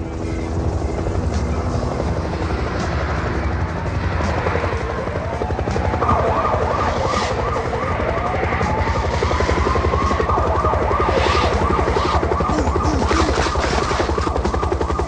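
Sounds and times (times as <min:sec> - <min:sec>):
helicopter rotor chopping: 0:00.0 - 0:15.0
police siren wailing: 0:04.5 - 0:15.0
police siren yelping warble: 0:05.0 - 0:15.0.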